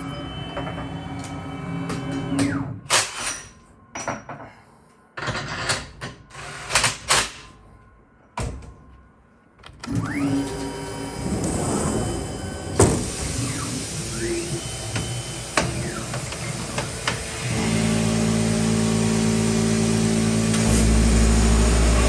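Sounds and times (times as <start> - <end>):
mill spindle motor whine: 9.9 - 22.0.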